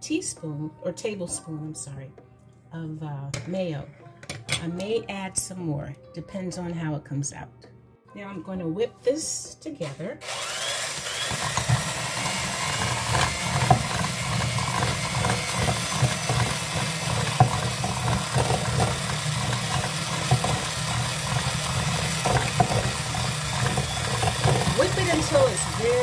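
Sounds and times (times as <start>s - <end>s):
electric hand mixer running: 10.2s - 26.0s.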